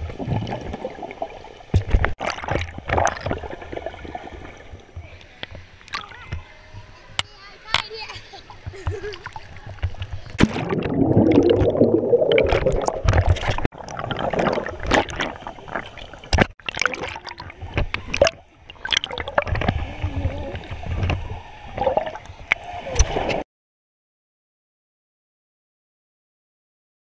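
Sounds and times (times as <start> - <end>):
muffled water gurgling and sloshing: 0.0 - 6.0, 8.6 - 23.4.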